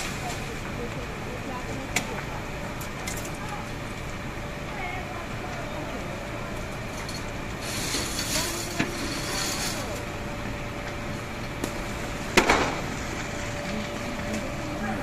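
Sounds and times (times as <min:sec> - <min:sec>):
large fire rushing: 0:00.0 - 0:15.0
sharp crack of fire: 0:00.0 - 0:15.0
hiss: 0:07.6 - 0:10.0.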